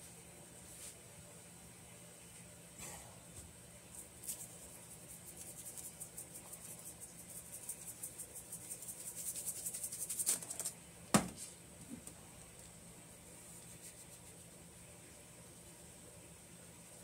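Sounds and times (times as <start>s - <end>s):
seasoning shaker rattling: 3.9s - 10.8s.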